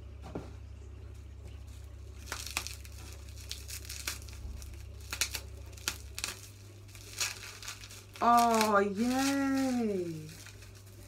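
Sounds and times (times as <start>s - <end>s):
wrapping crackling and rustling: 1.5s - 11.0s.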